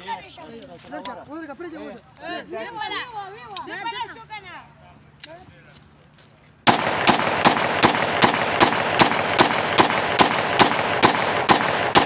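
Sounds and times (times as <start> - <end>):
pistol shots: 6.7 - 12.0.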